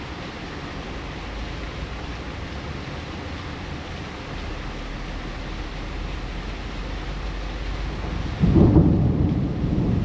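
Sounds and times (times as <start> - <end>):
rain hiss: 0.0 - 10.0
wind: 0.0 - 10.0
thunderclap rumbling: 8.0 - 10.0.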